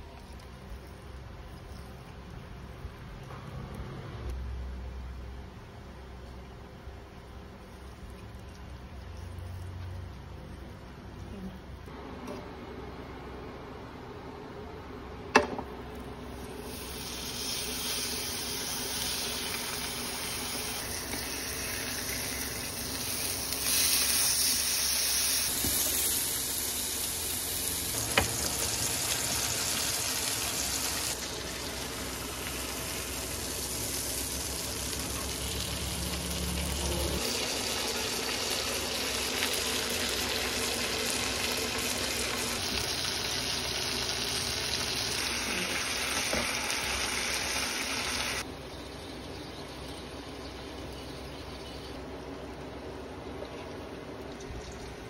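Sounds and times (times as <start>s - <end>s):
steak sizzling in a pan: 16.7s - 31.2s.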